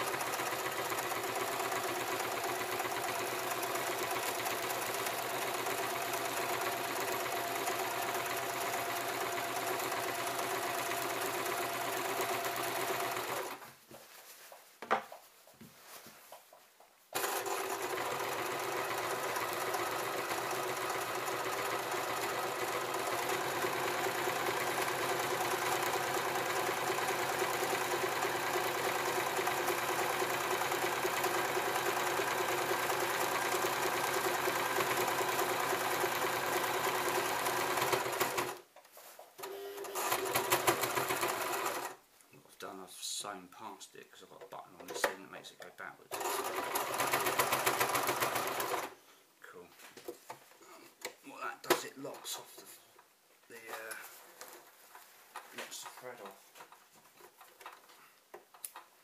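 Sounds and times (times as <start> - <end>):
electric sewing machine running: 0.0 - 13.6, 17.2 - 38.6, 39.4 - 42.0, 46.1 - 49.0.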